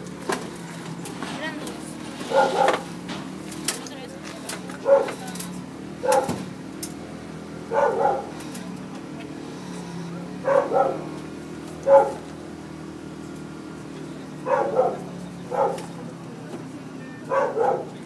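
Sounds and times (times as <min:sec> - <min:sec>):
dog barking: 0:02.2 - 0:02.8, 0:04.8 - 0:05.2, 0:06.0 - 0:06.4, 0:07.7 - 0:08.4, 0:10.4 - 0:11.2, 0:11.8 - 0:12.3, 0:14.4 - 0:16.0, 0:17.3 - 0:18.0.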